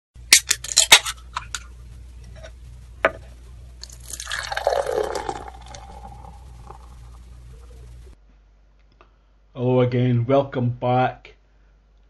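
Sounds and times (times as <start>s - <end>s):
liquid pouring into glass: 3.8s - 7.2s.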